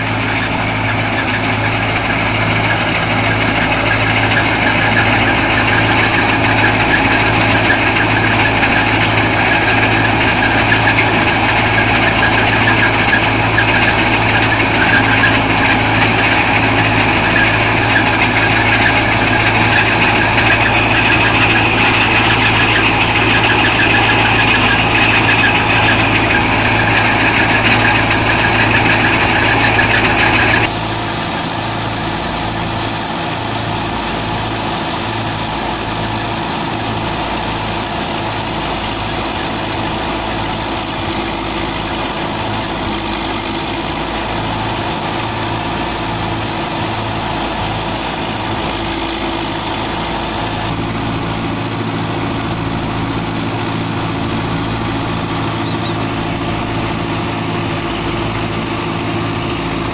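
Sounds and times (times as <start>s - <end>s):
thresher drum and fan whirring: 0.0s - 59.9s
tractor engine under load: 0.0s - 59.9s.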